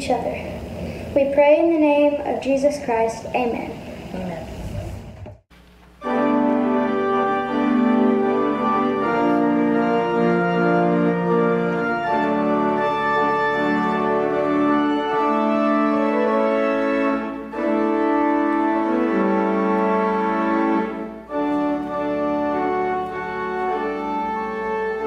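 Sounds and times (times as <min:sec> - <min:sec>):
organ playing sustained chords: 0:06.0 - 0:25.0.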